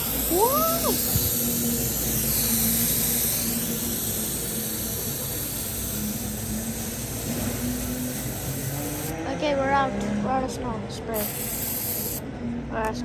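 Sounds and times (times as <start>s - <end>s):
aerosol spray can hissing: 0.0s - 9.1s, 11.2s - 12.2s.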